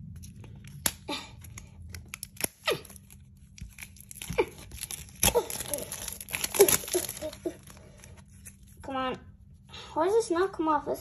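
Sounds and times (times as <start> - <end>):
plastic wrapper crinkling and tearing: 0.2 - 8.8.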